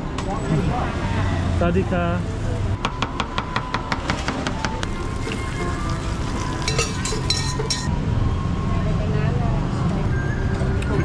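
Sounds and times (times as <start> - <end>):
high ringing metallic clinks: 6.7 - 7.9.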